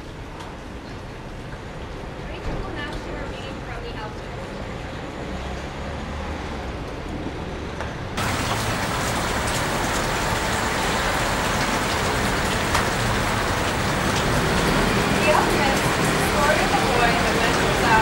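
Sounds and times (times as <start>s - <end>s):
steady rushing noise: 8.2s - 18.0s.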